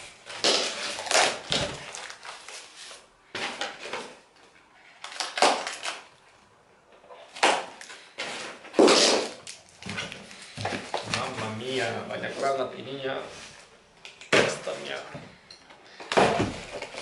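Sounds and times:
cardboard scraping and ripping: 0.2s - 4.2s, 8.2s - 9.5s.

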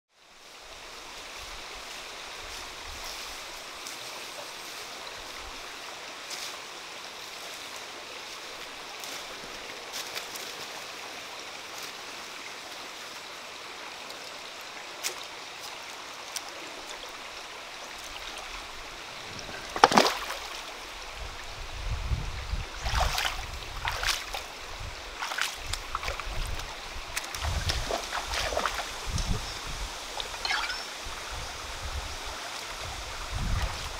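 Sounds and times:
rocky stream rushing: 0.3s - 33.9s
footsteps on stones and in water: 19.2s - 20.7s, 22.8s - 24.5s, 25.2s - 29.0s.

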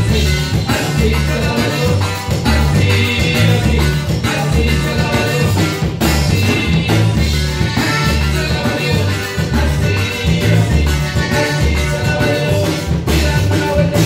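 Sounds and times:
accordion: 0.0s - 14.0s
acoustic guitar: 0.0s - 14.0s
drum kit: 0.0s - 14.0s
electric bass: 0.0s - 14.0s
saxophone: 7.1s - 14.0s.

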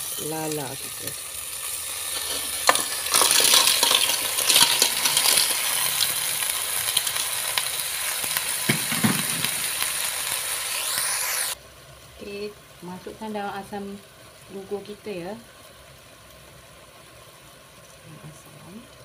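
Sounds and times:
frying sizzle: 0.0s - 19.0s
shells rattling in pot: 1.9s - 9.8s
clam shells clattering: 2.0s - 7.3s.

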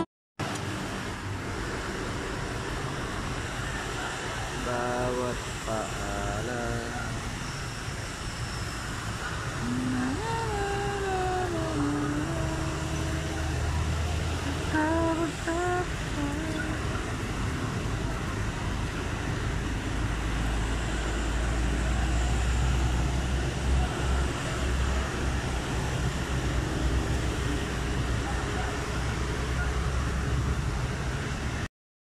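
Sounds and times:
vehicles passing: 0.0s - 31.7s.

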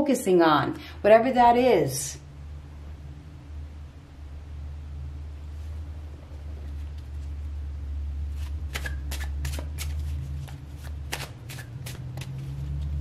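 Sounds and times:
low steady hum: 0.0s - 13.0s
cards being shuffled: 8.3s - 12.9s.

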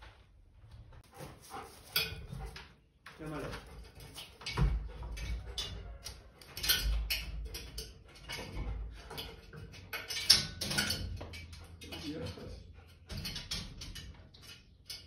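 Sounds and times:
dog claws clicking on metal ladder: 3.2s - 15.0s.

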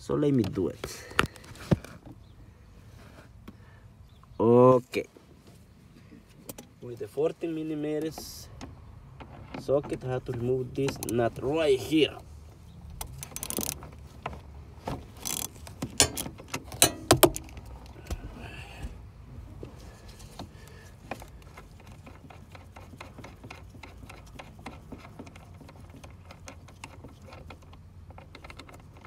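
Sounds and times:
sharp clicks and knocks: 8.0s - 11.4s, 12.9s - 18.2s, 20.3s - 29.0s
ratchet wrench clicking: 13.1s - 13.8s, 15.2s - 17.5s.

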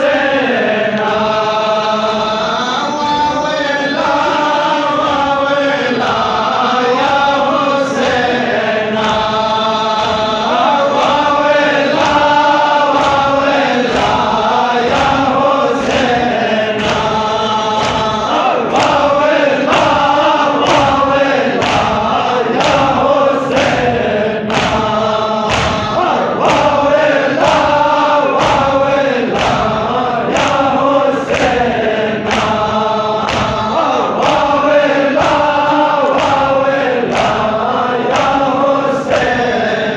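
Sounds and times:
men chanting in unison: 0.0s - 39.9s
hands slapping chests: 9.0s - 39.5s.

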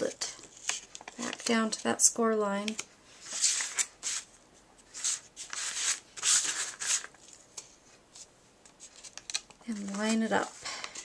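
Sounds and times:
paper rustling and rubbing: 3.2s - 7.4s.

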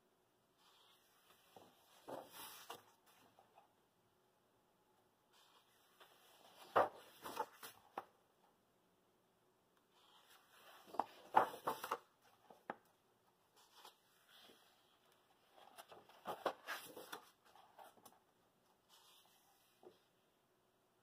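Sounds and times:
paper pages rustling and flapping: 1.3s - 3.4s, 5.4s - 8.1s, 10.2s - 12.8s, 15.4s - 18.2s.

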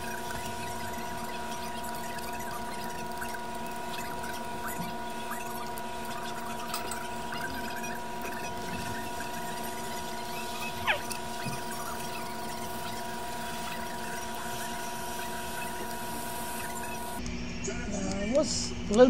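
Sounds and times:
scratching and small clicks: 0.0s - 17.4s
electrical hum: 0.0s - 19.0s.

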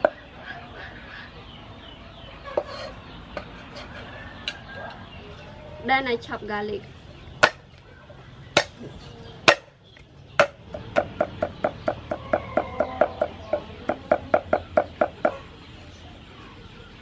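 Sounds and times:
cleaver chopping on wooden board: 7.4s - 7.6s, 9.4s - 9.7s, 10.4s - 15.3s.

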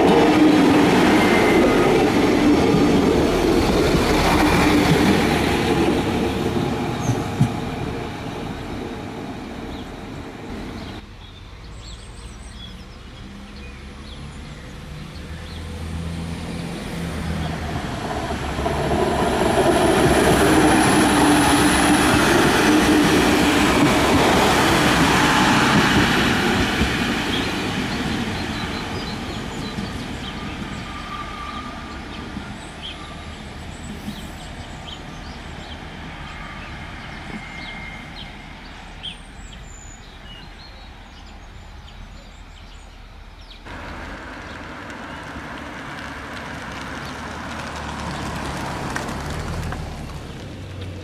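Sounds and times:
diesel railcar running past: 0.0s - 51.0s.

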